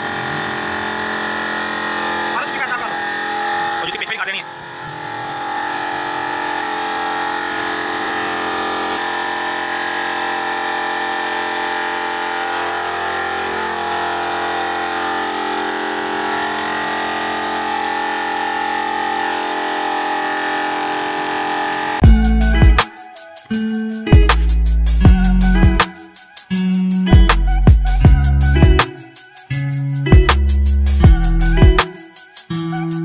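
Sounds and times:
air compressor humming: 0.0 - 26.0
loud music: 1.9 - 33.0.

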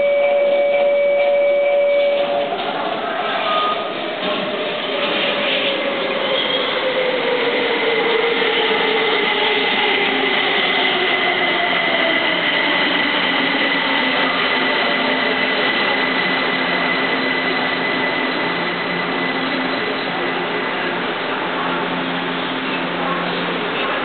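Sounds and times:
high steady tone: 0.0 - 2.5.

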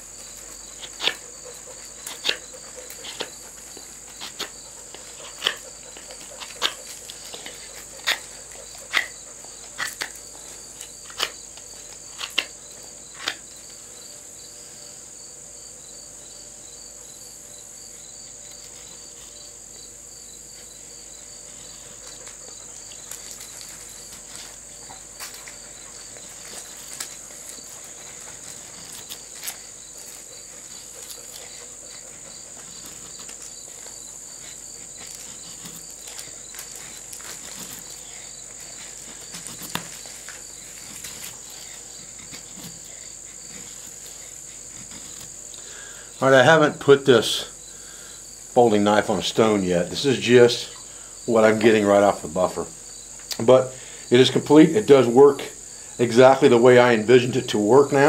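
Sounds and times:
knife shaving wood: 0.0 - 14.9, 17.8 - 46.9
insects droning: 0.0 - 58.0.

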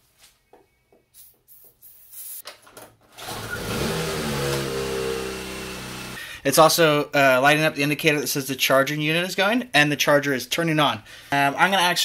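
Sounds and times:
small engine starting and running: 3.2 - 6.2.

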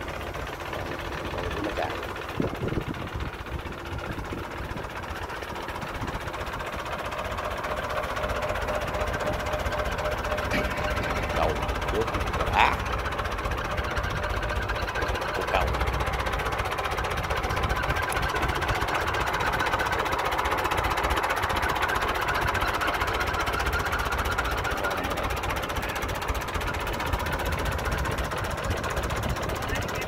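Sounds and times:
tractor engine idling: 0.0 - 30.0.

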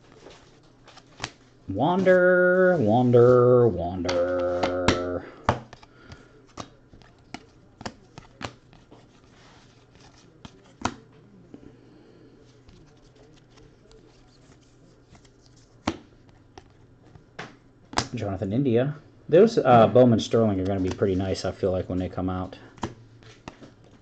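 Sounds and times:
faint low hum: 0.0 - 24.0
trading cards snapping and clicking: 17.4 - 18.2.

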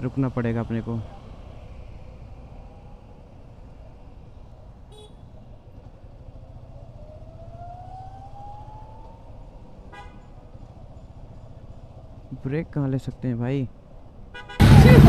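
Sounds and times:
motorcycle engine and road noise: 0.0 - 15.0
horn toot: 14.4 - 15.0.

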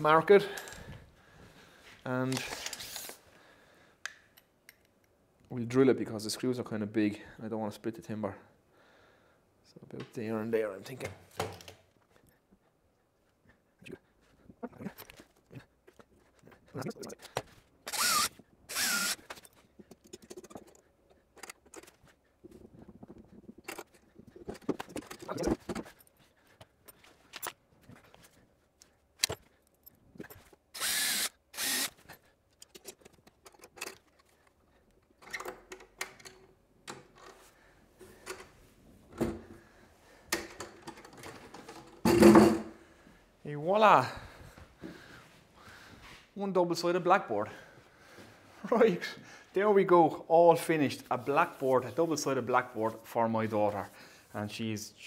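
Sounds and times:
cordless drill boring: 17.9 - 19.4, 30.8 - 32.0
handling clicks and knocks: 19.2 - 30.6, 32.5 - 37.4, 40.3 - 42.7.

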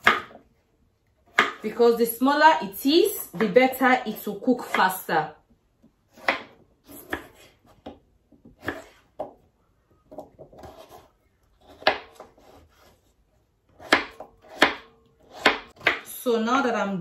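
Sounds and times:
knife scraping on board: 10.4 - 13.1.

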